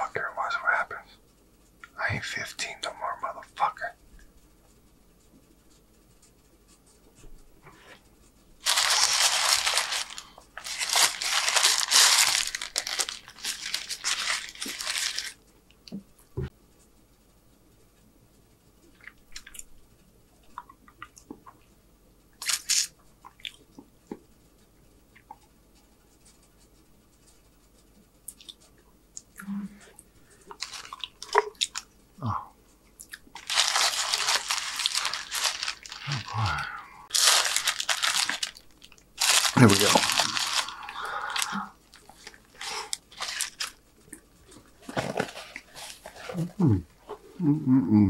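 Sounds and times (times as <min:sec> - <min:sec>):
paper wrapper crinkling: 0:08.6 - 0:15.4, 0:22.4 - 0:22.9, 0:30.4 - 0:31.9, 0:33.3 - 0:36.5, 0:37.1 - 0:43.8, 0:44.4 - 0:46.6
close-miked chewing: 0:28.2 - 0:31.9, 0:32.8 - 0:44.7.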